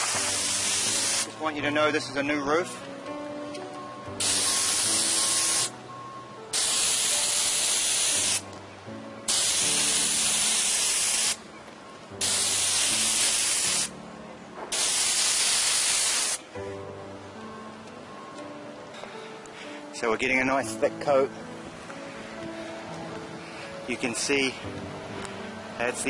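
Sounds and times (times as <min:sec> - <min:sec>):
spray wand hissing: 0:00.0 - 0:01.3, 0:04.2 - 0:05.7, 0:06.5 - 0:08.4, 0:09.3 - 0:11.4, 0:12.2 - 0:13.9, 0:14.7 - 0:16.4.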